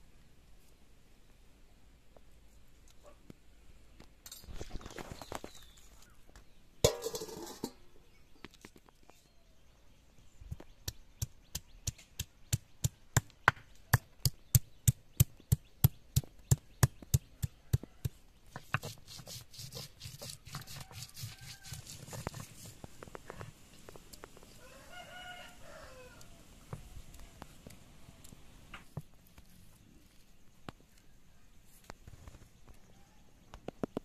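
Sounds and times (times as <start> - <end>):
ginger scraping on grinding stone: 18.5 - 23.4.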